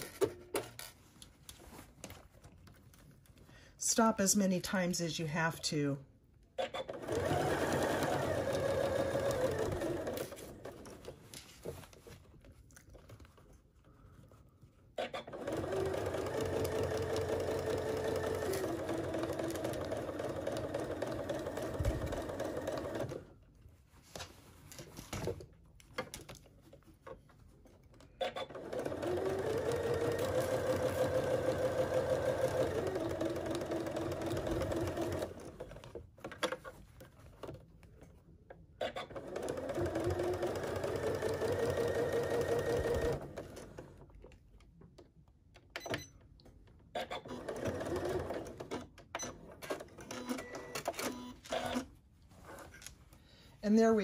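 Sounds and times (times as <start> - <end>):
sewing machine stitching: 6.6 - 11.2, 15.0 - 23.3, 28.2 - 36.8, 38.8 - 44.1, 46.9 - 51.9.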